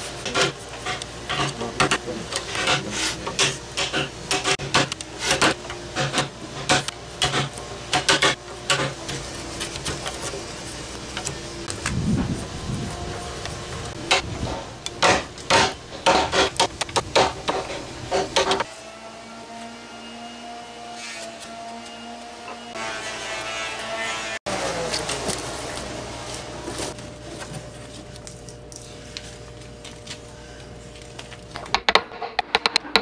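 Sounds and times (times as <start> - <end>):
chisel scraping wood: 0.2 - 11.4.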